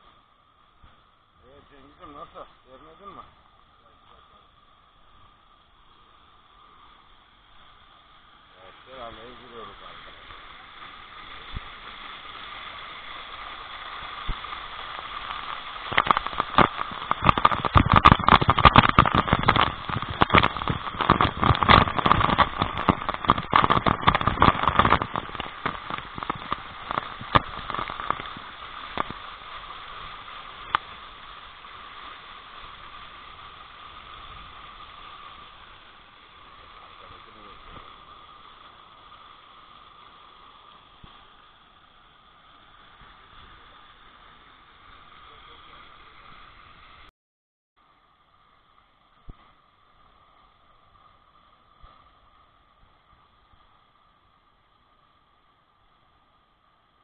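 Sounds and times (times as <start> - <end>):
crackling pops and knocks: 0.8 - 1.1, 9.2 - 41.6, 49.2 - 49.7, 51.7 - 52.2
waterfall rushing: 1.4 - 47.1.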